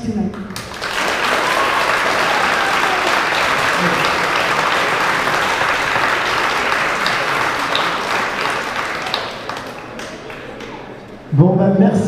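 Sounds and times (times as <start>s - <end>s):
audience applauding: 0.3s - 11.2s.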